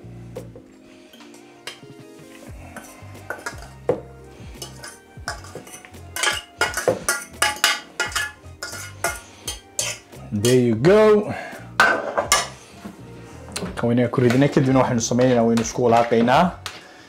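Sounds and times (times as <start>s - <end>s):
background music: 0.0s - 17.0s
fork scraping a saucepan: 2.7s - 10.6s.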